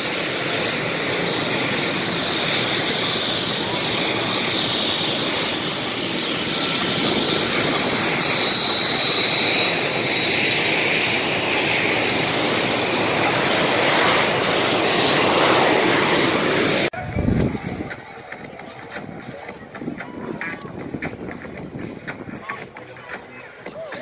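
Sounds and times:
jet engine turbine whine: 0.0s - 18.5s
jet engine rushing noise: 0.0s - 22.8s.

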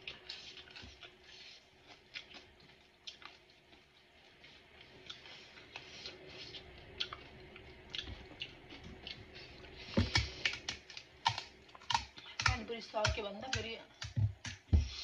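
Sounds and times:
crisp shells crunching when chewed: 6.6s - 12.6s.

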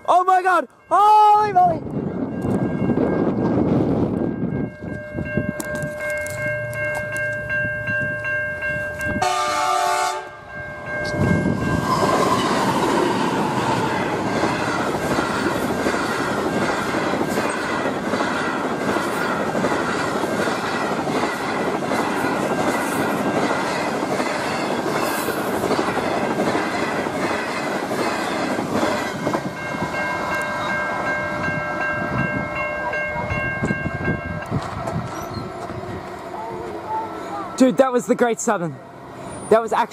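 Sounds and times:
level crossing bells ringing: 4.2s - 12.0s, 29.6s - 34.6s, 36.5s - 39.9s
train wheels rushing on rail: 8.1s - 39.9s.

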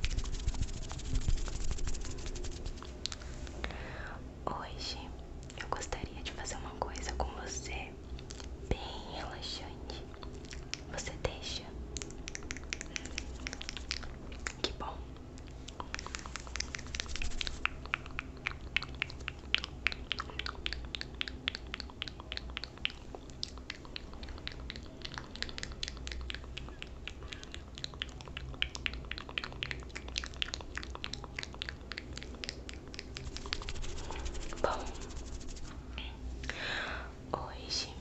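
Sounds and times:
steady low hum: 0.0s - 38.0s
soft crackling finger clicks: 2.2s - 3.6s, 5.4s - 8.6s, 9.9s - 36.6s.

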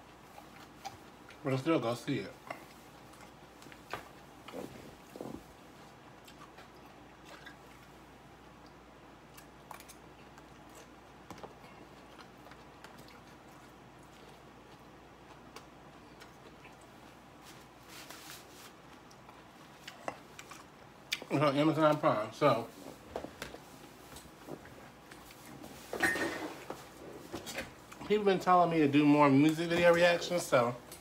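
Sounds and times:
person chewing salad: 0.0s - 1.4s, 2.4s - 21.3s, 22.8s - 25.8s, 26.6s - 28.0s.

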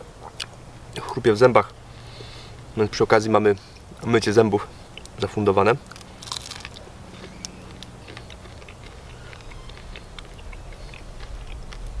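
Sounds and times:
chewing crunchy flatbread: 4.9s - 12.0s.

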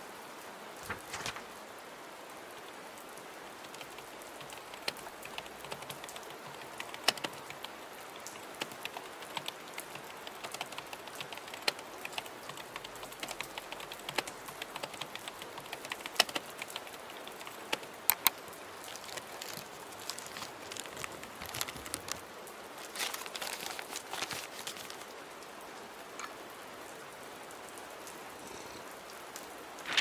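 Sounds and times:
keyboard key clicks: 8.6s - 20.5s
rain hissing: 27.2s - 30.0s.

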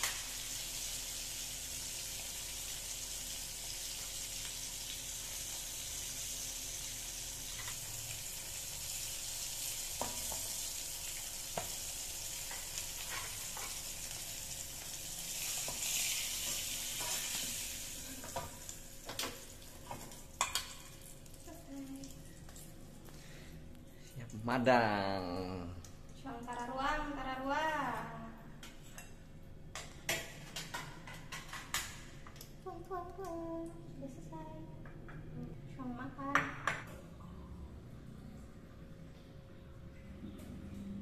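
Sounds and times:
fish sizzling in hot oil: 0.0s - 22.0s.

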